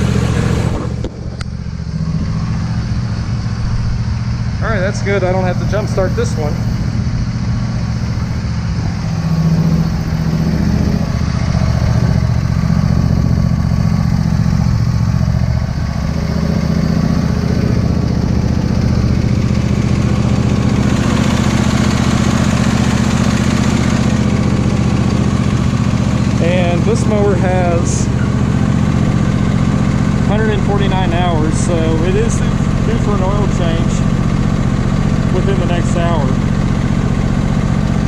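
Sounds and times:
lawn tractor engine running: 0.0 - 38.0.

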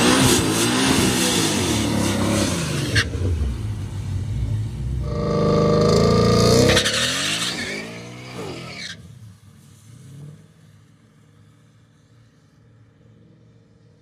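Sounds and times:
drag car engine at full throttle: 0.0 - 10.7.

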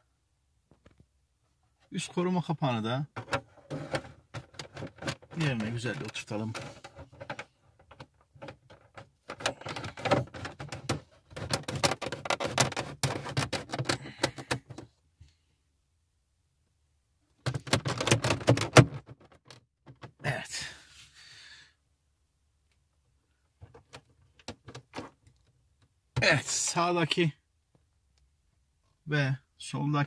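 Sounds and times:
plastic hood clicking into place: 6.6 - 14.8.

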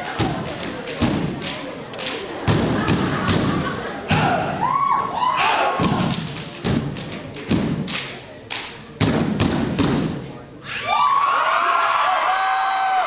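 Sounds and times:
stomps and claps in unison: 0.0 - 4.5, 5.4 - 10.2
performers shouting: 4.1 - 6.1.

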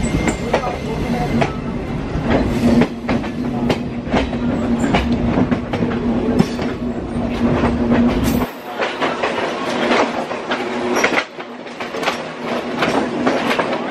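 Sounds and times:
passing train coaches: 0.0 - 13.9
train running rumble and hum: 0.0 - 13.9
train wheels clicking over rail joints: 0.0 - 13.9.

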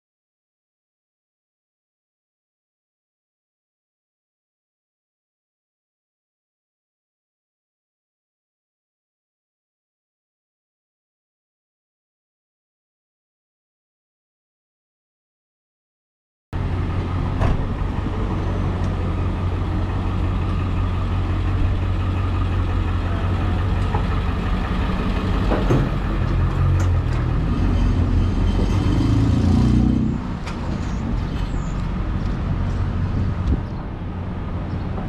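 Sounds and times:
street traffic rumble: 16.6 - 35.0.

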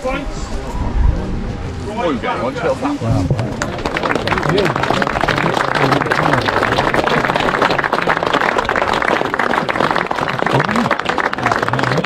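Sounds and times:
voices: 0.0 - 12.0
people clapping: 3.2 - 12.0.

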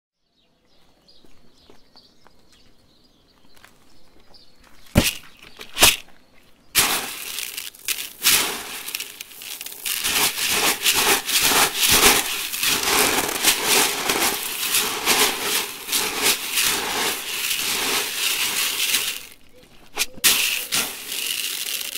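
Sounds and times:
plastic pellets rattling in bucket: 6.8 - 21.9.

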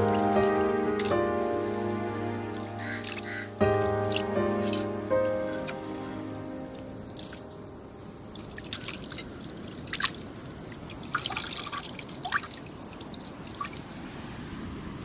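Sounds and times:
water dripping and trickling into basin: 8.3 - 14.0.

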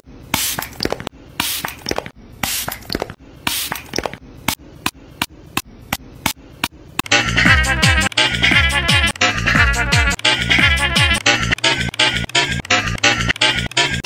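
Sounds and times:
bursts of hiss: 1.4 - 1.8
music: 7.0 - 14.0
sharp clicks: 10.1 - 14.0.

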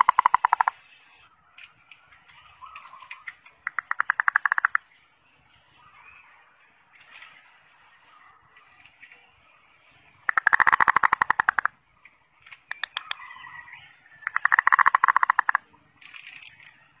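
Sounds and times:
dove rattling call: 0.0 - 0.8, 2.3 - 4.8, 10.2 - 11.8, 12.4 - 17.0
faint bird chirps: 2.2 - 11.7.

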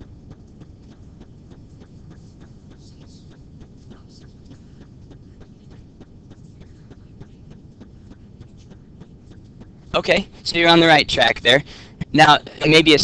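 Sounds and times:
faint ticks: 0.0 - 10.2
low room noise: 0.0 - 13.0.

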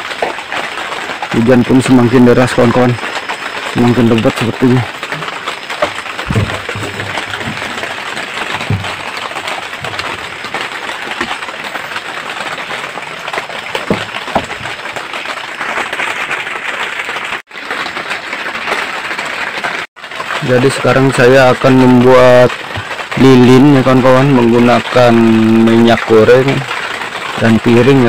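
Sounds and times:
heavy rain on roof: 0.0 - 28.0
dull knocks: 5.2 - 11.5, 13.4 - 14.9.

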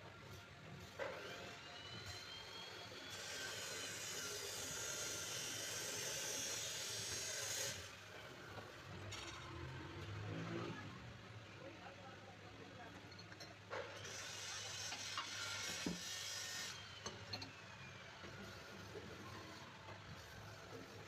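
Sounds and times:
boring machine whining and hissing: 0.2 - 8.6, 14.0 - 21.0.

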